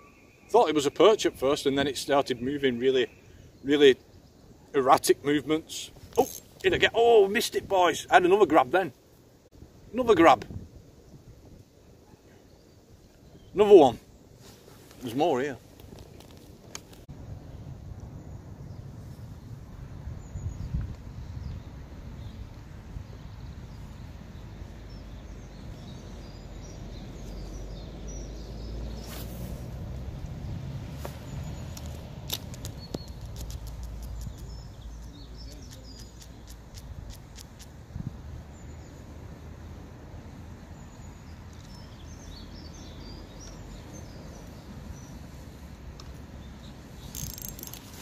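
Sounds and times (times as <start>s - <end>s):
small birds chirping: 0.0s - 19.6s, 20.2s - 48.0s
wind rumbling on microphone: 9.6s - 13.6s, 15.6s - 48.0s
high rustle: 14.3s - 17.1s, 29.0s - 29.8s, 46.9s - 48.0s.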